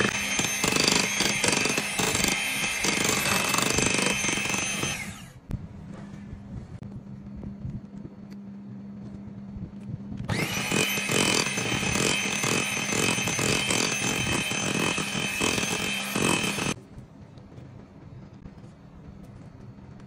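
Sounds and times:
electric hand mixer whining: 0:00.0 - 0:05.4, 0:10.3 - 0:16.8
low hum: 0:02.6 - 0:20.0.

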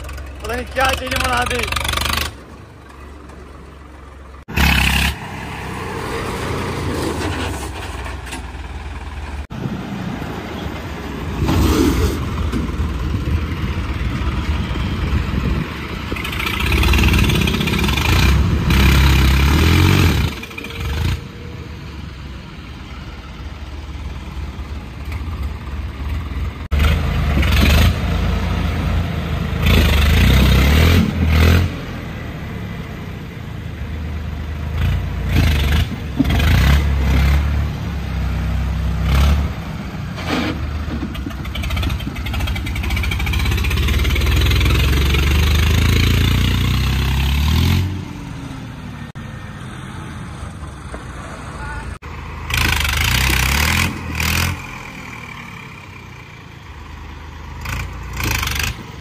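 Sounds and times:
tractor diesel engine revving: 0:00.0 - 0:59.0.

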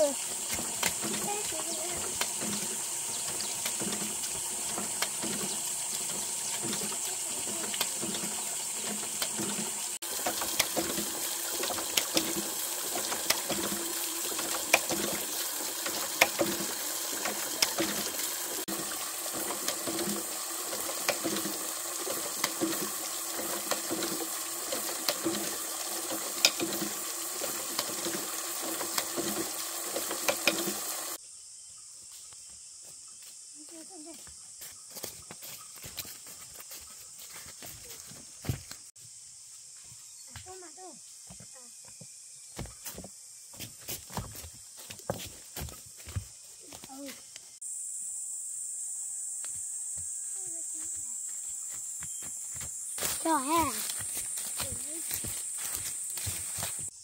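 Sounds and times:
bamboo water wheel knocking: 0:00.0 - 0:31.2
water splashing into pond: 0:00.0 - 0:31.2.

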